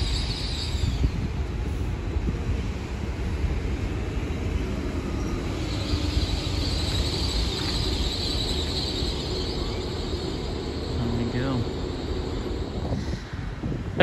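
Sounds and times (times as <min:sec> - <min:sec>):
train low rumble: 0:00.0 - 0:14.0.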